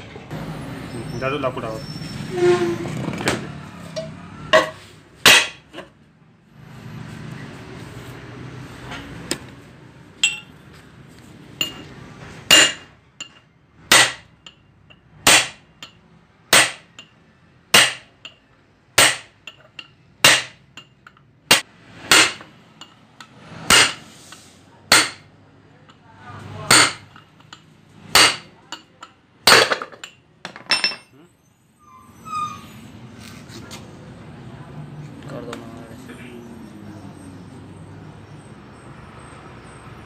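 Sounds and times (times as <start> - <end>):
hammer striking steel rod: 4.0 - 5.9, 10.2 - 10.5, 12.5 - 14.6, 15.2 - 17.1, 17.7 - 18.4, 19.0 - 23.0, 23.7 - 24.1, 24.9 - 25.3, 26.6 - 27.5, 28.1 - 28.9.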